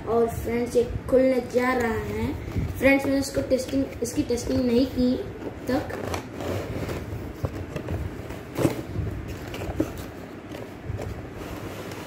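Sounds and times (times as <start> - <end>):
cardboard box rustling and scraping: 5.5 - 12.0.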